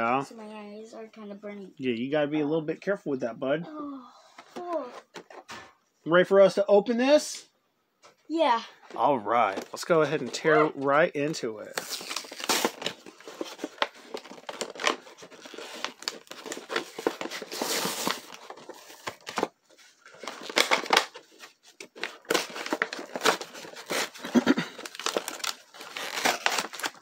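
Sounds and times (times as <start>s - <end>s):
plastic packaging crinkling: 11.7s - 27.0s
cardboard box tearing: 11.8s - 19.4s, 21.9s - 27.0s.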